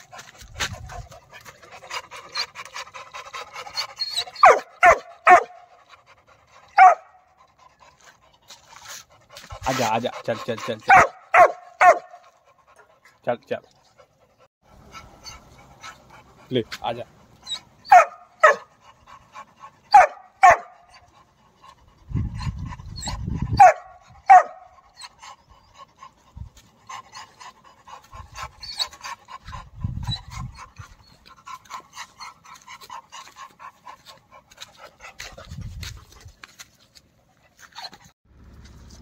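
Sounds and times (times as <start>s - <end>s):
dog panting quickly: 0.0s - 38.1s
puppy barking sharply: 4.4s - 5.6s, 6.8s - 7.2s, 10.9s - 12.2s, 17.9s - 18.7s, 19.9s - 20.8s, 23.6s - 24.7s.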